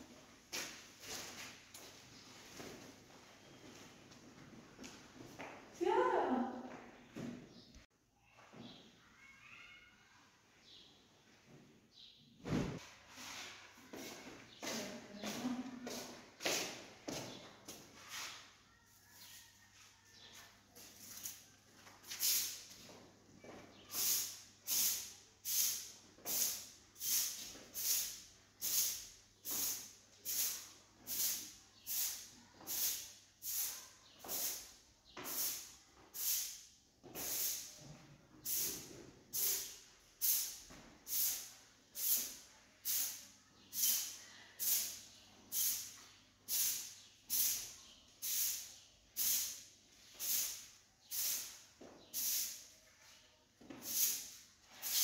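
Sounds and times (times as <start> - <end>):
brush swishing over a surface: 12.8 - 16.6, 18.0 - 18.6, 53.8 - 55.0.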